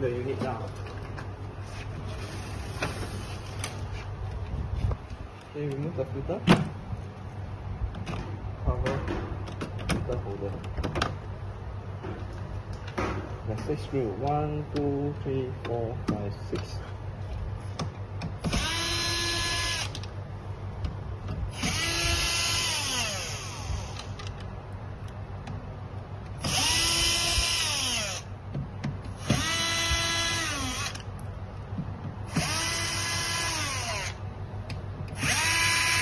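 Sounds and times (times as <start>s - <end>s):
cordless drill motor whine: 18.5s - 20.1s, 21.5s - 24.2s, 26.4s - 28.3s, 29.2s - 31.1s, 32.3s - 34.2s, 35.2s - 36.0s.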